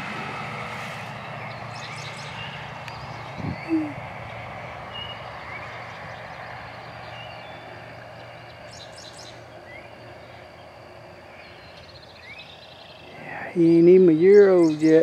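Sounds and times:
low hum: 0.0 - 14.2
high bird trill: 1.2 - 10.7
bird chirps: 1.2 - 15.0.

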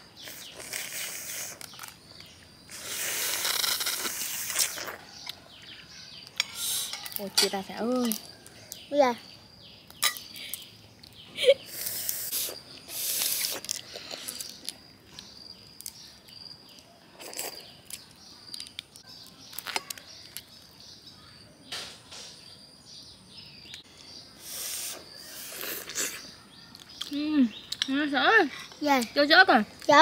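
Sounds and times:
slurping and sucking shells: 0.2 - 2.0, 2.6 - 5.3, 6.4 - 7.1, 11.6 - 14.8, 24.4 - 26.3.

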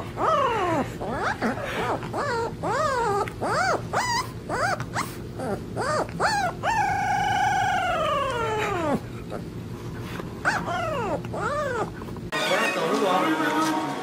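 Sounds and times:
puppy howling: 0.0 - 9.5, 10.4 - 12.1
puppy yelping whines: 0.0 - 9.5, 10.4 - 12.4.

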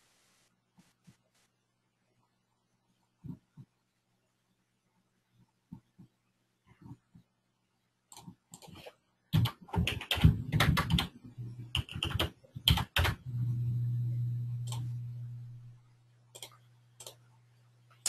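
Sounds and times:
steady low hum: 10.2 - 18.0.

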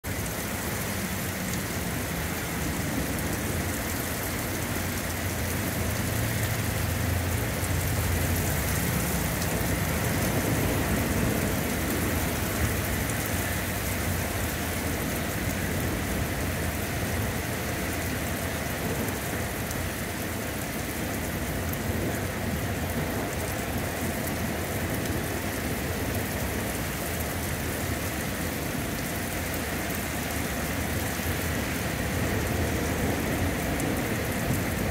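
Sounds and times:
heavy rain on pavement and cars: 0.0 - 34.9.

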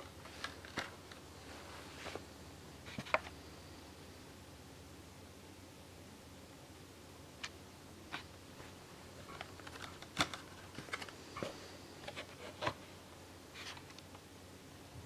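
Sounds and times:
plastic packaging crackling: 9.2 - 11.2.

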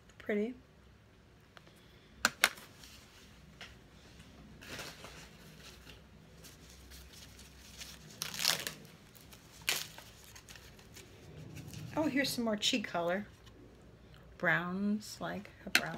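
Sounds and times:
packaging rustling: 4.6 - 11.9.

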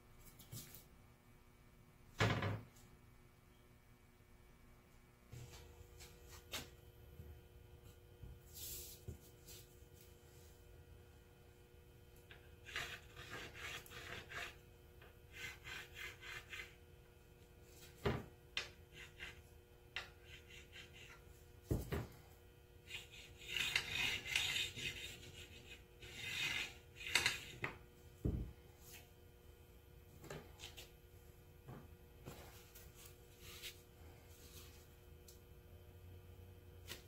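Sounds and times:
marker scratching on paper: 12.6 - 14.6, 15.3 - 16.8, 18.9 - 19.4, 20.2 - 21.2, 22.9 - 27.5.

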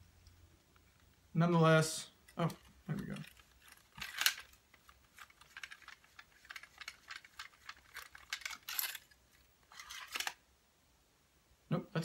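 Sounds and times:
rod sections scraping: 2.2 - 10.4
fishing rod sections clicking: 2.3 - 9.0.

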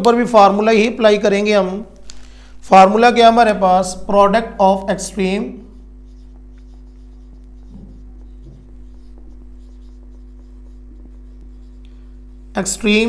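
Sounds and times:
steady low hum: 0.0 - 13.0
marker writing on whiteboard: 2.8 - 13.0.

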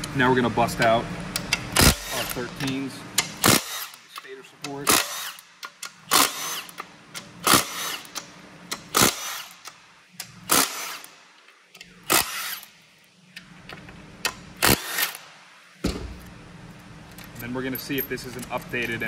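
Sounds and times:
impact wrench bursts: 1.3 - 12.8, 14.3 - 16.3.

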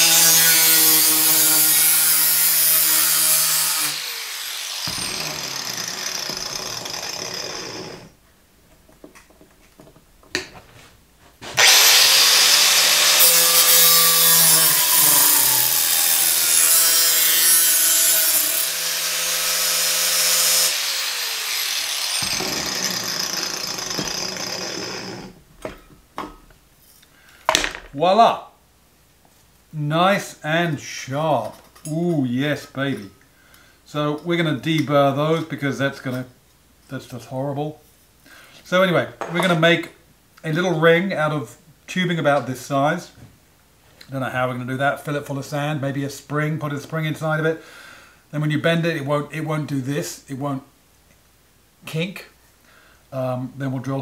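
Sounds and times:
angle grinder cutting metal: 0.0 - 8.1, 11.6 - 25.4
tools set down knocking: 27.5 - 28.0.

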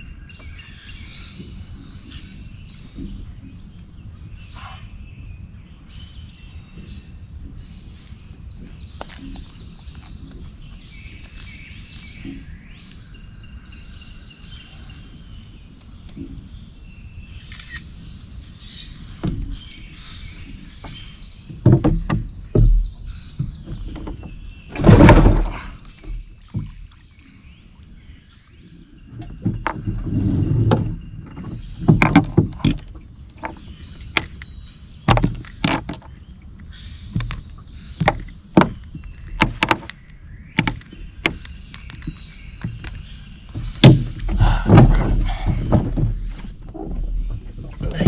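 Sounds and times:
gear knocking against boat hull: 20.6 - 26.9, 29.1 - 34.4, 35.1 - 36.2, 37.1 - 48.0.

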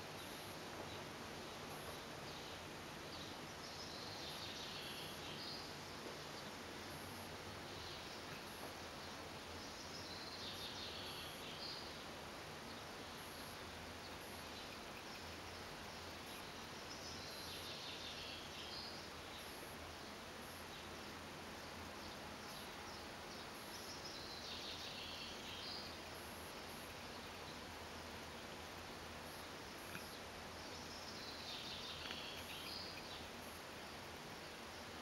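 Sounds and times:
outdoor background noise: 0.0 - 35.0
distant birds chirping: 12.6 - 35.0.

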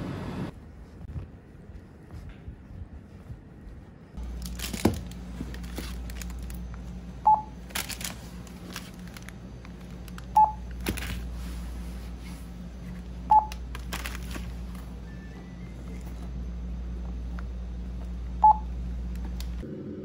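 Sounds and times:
steady low hum: 0.0 - 20.0
plastic wrappers crinkling: 4.2 - 11.4, 13.5 - 15.1
barcode scanner beeps: 7.2 - 7.6, 10.3 - 10.7, 13.3 - 13.6, 18.4 - 18.7.

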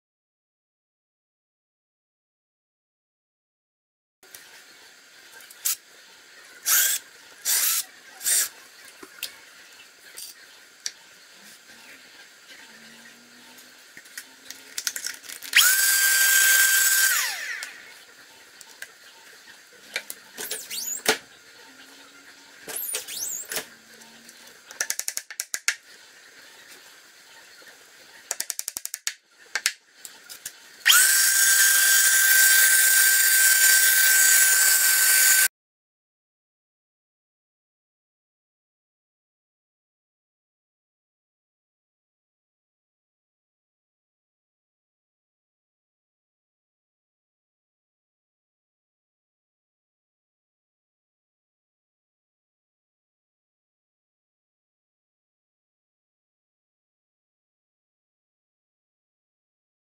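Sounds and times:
cordless drill drilling wood: 6.6 - 8.5, 15.5 - 17.8, 30.8 - 35.5.

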